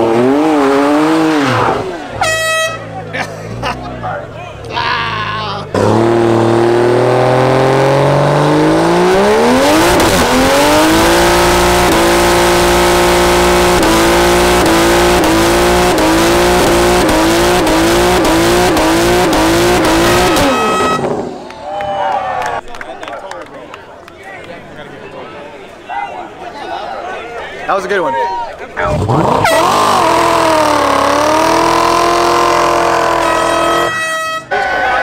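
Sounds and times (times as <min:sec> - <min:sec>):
car engine revving: 0:00.0 - 0:21.4, 0:28.8 - 0:34.8
tires squealing: 0:00.2 - 0:03.1, 0:08.5 - 0:21.8, 0:28.8 - 0:35.0.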